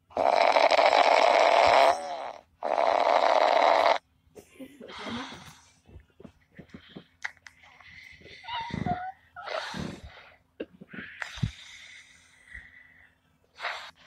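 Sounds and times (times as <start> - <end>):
man snoring: 0.1 - 4.0.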